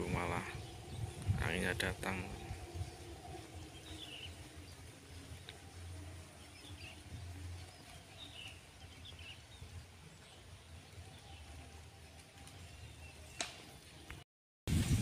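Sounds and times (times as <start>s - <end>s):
wind buffeting microphone: 0.0s - 11.3s, 14.7s - 15.0s.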